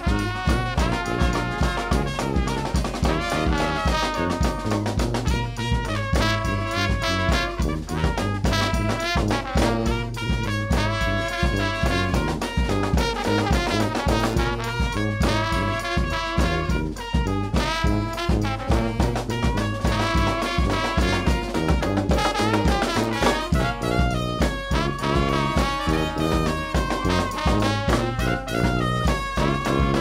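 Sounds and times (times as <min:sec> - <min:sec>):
bass drum and snare beat: 0:00.0 - 0:30.0
brass band playing: 0:00.0 - 0:30.0
sousaphone bass line: 0:00.0 - 0:30.0.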